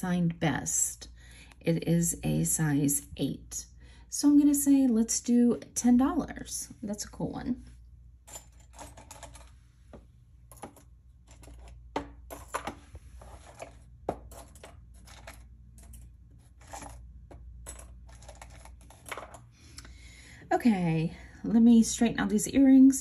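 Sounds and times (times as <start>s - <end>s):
low steady hum: 0.0s - 23.0s
jewelry clicking and clinking: 8.2s - 19.6s.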